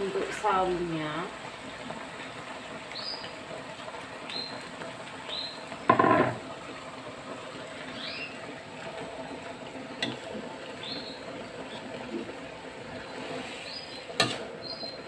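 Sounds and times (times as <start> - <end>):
vegetables sizzling in a wok: 0.0 - 15.0
metal spatula scraping a wok: 13.1 - 14.5.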